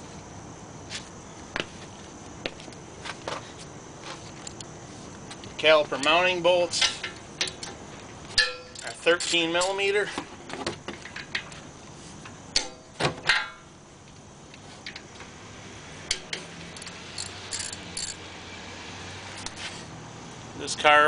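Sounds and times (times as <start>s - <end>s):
metallic clinks of wrench and bolts: 8.4s - 9.9s, 16.7s - 18.2s.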